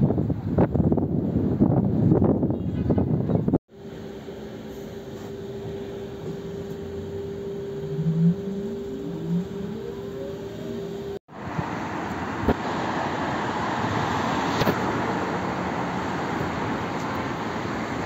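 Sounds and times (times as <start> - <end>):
hum with rising whine: 3.7 - 12.9
passing cars: 7.9 - 18.0.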